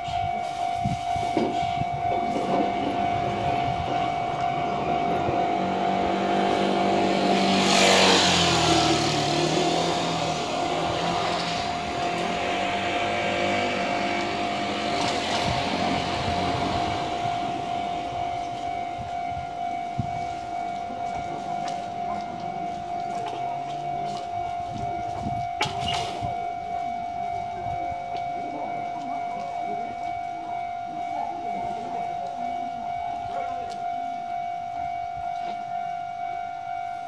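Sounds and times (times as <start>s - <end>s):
level crossing warning bell: 0.0s - 37.0s
vehicle passing close by: 4.2s - 18.2s.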